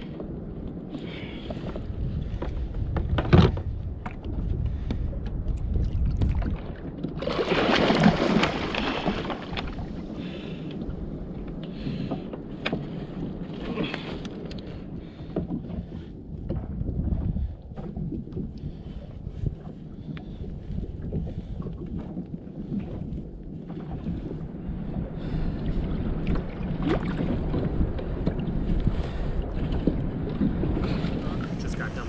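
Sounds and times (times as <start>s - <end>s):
water washing against plastic hull: 0.0s - 32.0s
wind buffeting microphone: 0.0s - 32.0s.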